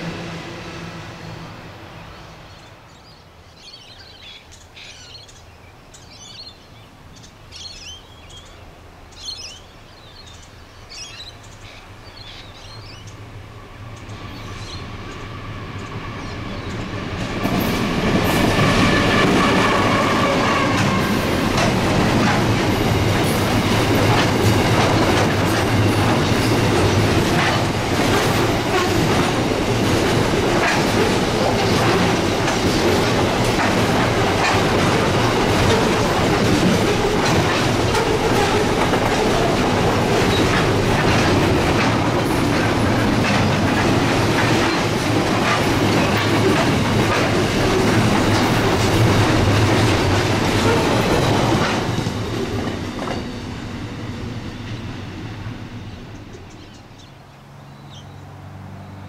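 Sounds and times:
diesel locomotive passing: 0:00.0 - 0:59.0
train wheels clacking over rail joints: 0:16.6 - 0:53.7.

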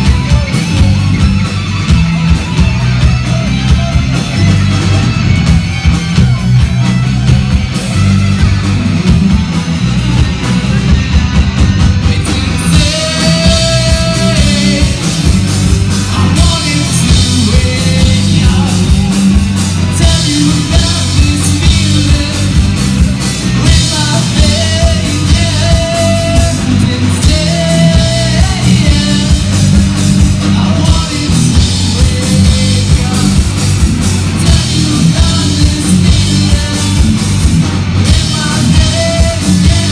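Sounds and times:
rock band playing: 0:00.0 - 0:39.9
person singing: 0:10.0 - 0:37.4, 0:38.0 - 0:39.9.

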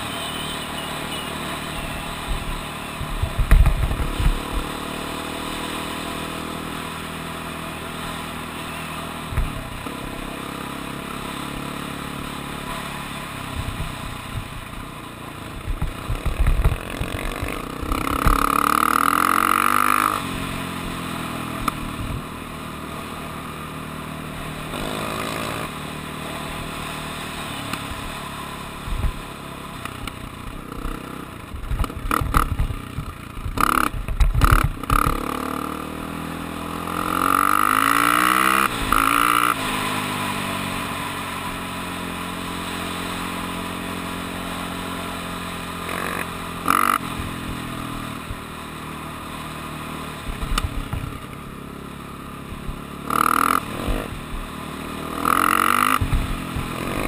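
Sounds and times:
off-road vehicle engine revving: 0:15.9 - 0:21.9, 0:24.4 - 0:27.8, 0:33.5 - 0:47.4, 0:53.0 - 0:57.0.

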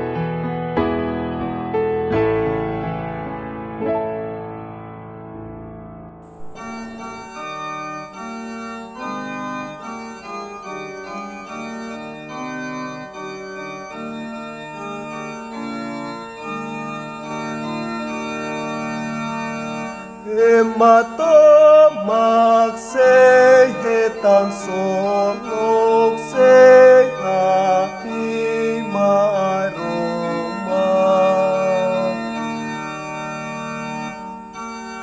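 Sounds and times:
electronic organ playing hymn: 0:00.0 - 0:35.0
person singing: 0:20.2 - 0:32.5.

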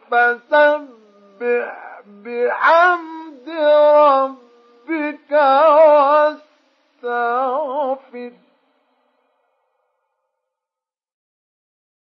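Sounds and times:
man chanting recitation: 0:00.0 - 0:08.4.

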